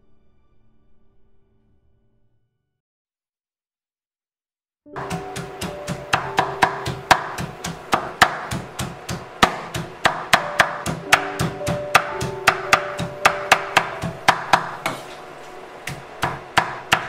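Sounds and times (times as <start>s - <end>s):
background music with held notes: 4.9s - 15.3s
knife chopping on wooden board: 5.0s - 15.2s, 15.8s - 17.0s.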